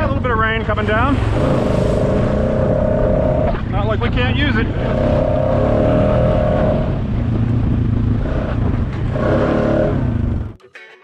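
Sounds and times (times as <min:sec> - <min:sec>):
atv engine running: 0:05.0 - 0:10.6.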